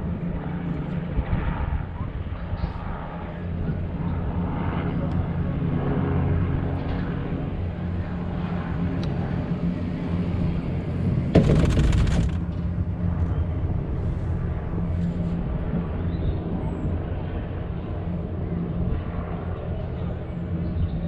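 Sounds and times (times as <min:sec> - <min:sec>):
sudden burst of noise: 0:11.4 - 0:12.4.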